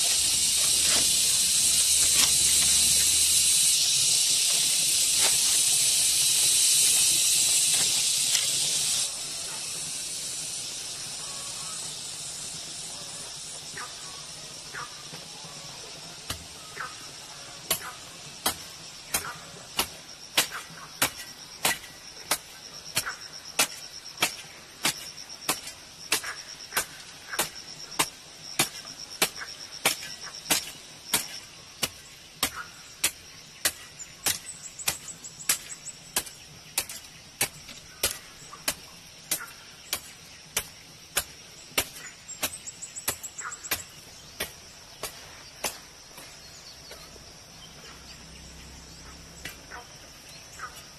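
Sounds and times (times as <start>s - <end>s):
hoe chopping dry soil: 0.0s - 9.1s, 16.2s - 16.9s, 17.6s - 47.1s
insects shrilling: 0.0s - 50.9s.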